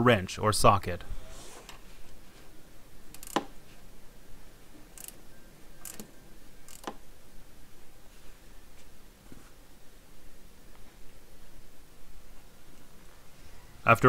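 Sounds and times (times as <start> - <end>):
wrench metallic clicks: 3.1 - 3.5, 5.0 - 5.2, 5.8 - 6.1, 6.7 - 7.0.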